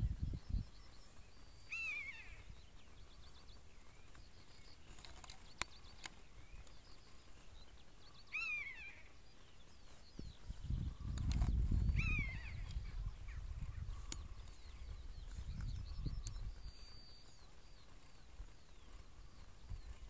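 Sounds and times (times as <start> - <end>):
small birds chirping: 0.0 - 20.0
bird of prey crying: 1.7 - 2.5, 8.2 - 9.1, 11.9 - 13.4.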